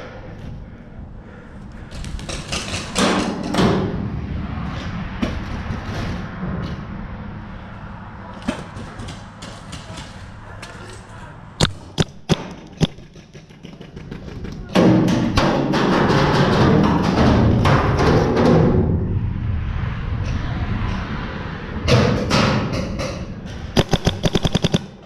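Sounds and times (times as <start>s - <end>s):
noisy background: 0.0s - 25.0s
sharp cracks: 1.8s - 3.8s, 11.6s - 16.1s, 23.8s - 25.0s.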